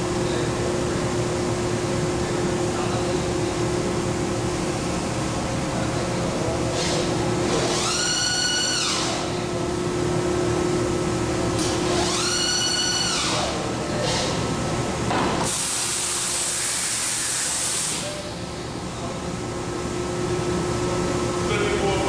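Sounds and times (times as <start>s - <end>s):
steady hum: 0.0s - 22.0s
cnc router motor whine: 6.8s - 9.5s, 11.6s - 14.3s
hiss of air: 15.4s - 18.1s.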